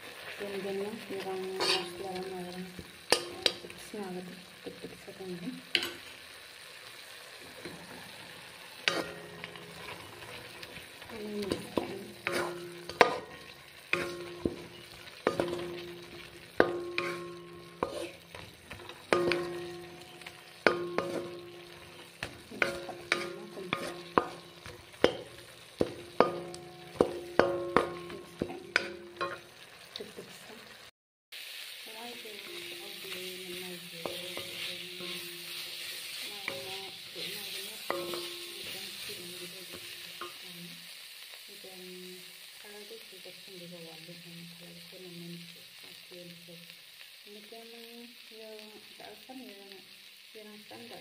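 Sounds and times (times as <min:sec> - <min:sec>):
food sizzling: 0:00.0 - 0:51.0
metal utensil clanking on pan: 0:01.6 - 0:02.0, 0:03.1 - 0:03.7, 0:05.7 - 0:06.1, 0:08.8 - 0:29.6, 0:34.0 - 0:40.5.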